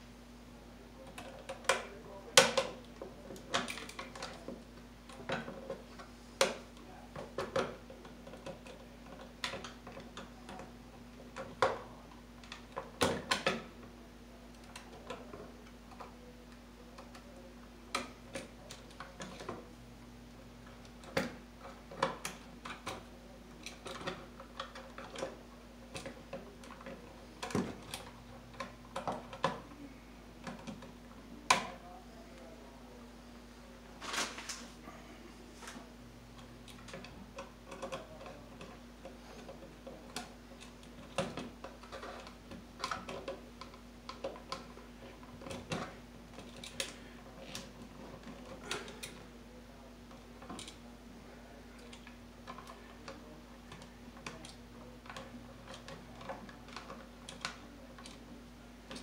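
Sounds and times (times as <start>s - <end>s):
low steady hum: 0.0s - 59.0s
clicks and taps of wiring: 1.0s - 10.7s, 11.3s - 13.9s, 20.6s - 29.7s, 30.4s - 32.5s, 36.4s - 49.3s, 50.0s - 50.8s, 51.8s - 59.0s.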